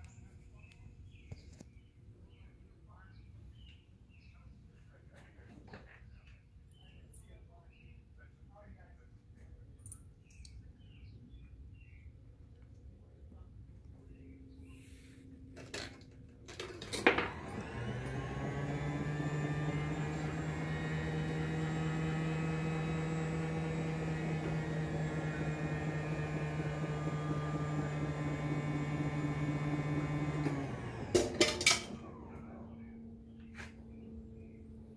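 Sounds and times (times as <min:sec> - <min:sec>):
motor hum with whirring gears: 0:16.5 - 0:34.9.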